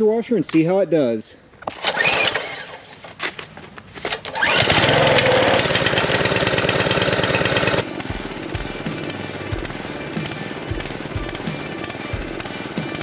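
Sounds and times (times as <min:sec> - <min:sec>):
small engine starting and running: 0:01.7 - 0:03.1, 0:04.1 - 0:13.0.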